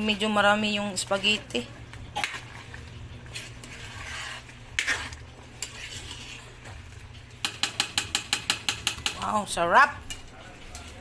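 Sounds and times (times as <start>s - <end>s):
metal spoon scraping a metal pan: 3.3s - 6.6s.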